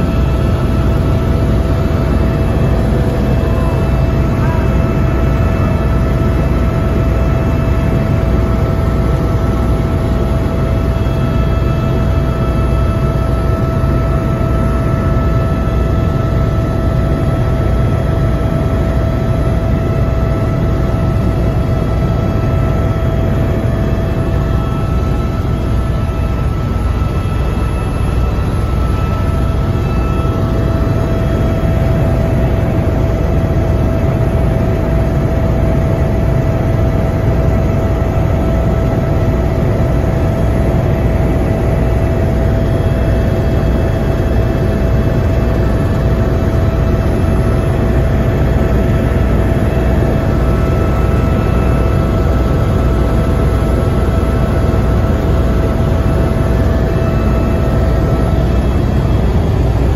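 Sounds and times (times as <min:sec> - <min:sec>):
helicopter rotor rumble: 0:00.0 - 0:59.9
steady engine whine: 0:00.0 - 0:59.9.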